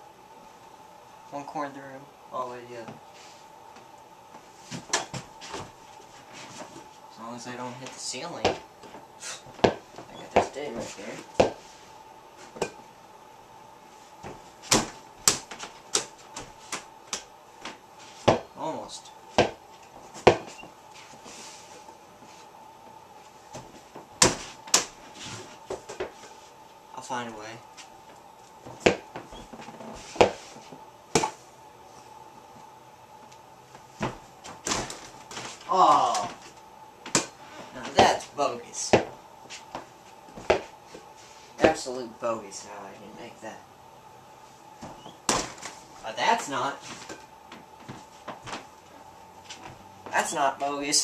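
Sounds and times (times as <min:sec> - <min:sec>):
basketball knocking and bouncing: 0:08.4 - 0:08.6, 0:09.6 - 0:10.6, 0:11.4 - 0:11.6, 0:18.2 - 0:18.5, 0:19.4 - 0:19.6, 0:20.2 - 0:20.6, 0:28.7 - 0:30.4, 0:38.9 - 0:39.2.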